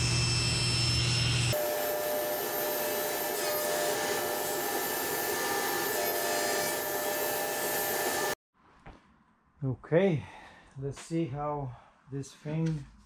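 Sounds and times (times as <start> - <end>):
panel saw cutting plywood: 0.0 - 8.4.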